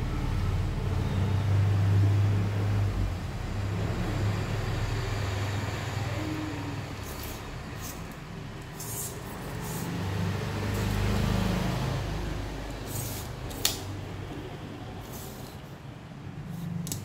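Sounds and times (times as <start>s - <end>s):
tape measure blade scraping: 7.0s - 10.0s, 12.7s - 13.8s.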